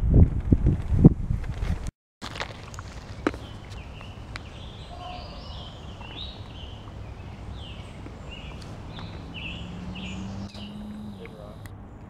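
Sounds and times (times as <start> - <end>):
low background noise: 2.4 - 12.0
birds chirping and warbling: 2.7 - 12.0.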